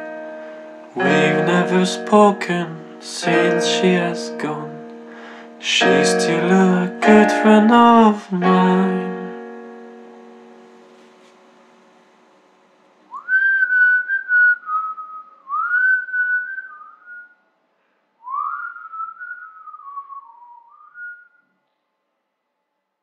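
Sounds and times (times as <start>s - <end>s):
person whistling a melody: 13.1s - 17.3s, 18.2s - 21.4s.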